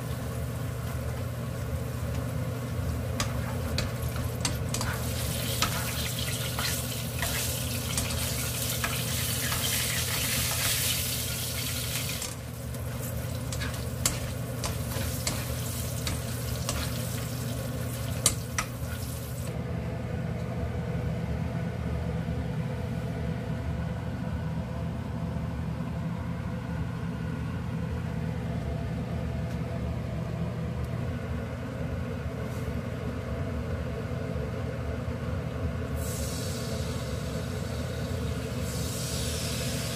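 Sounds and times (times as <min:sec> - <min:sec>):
oil sizzling in a wok: 0:00.0 - 0:19.6, 0:36.0 - 0:39.9
steady low hum: 0:00.0 - 0:39.9.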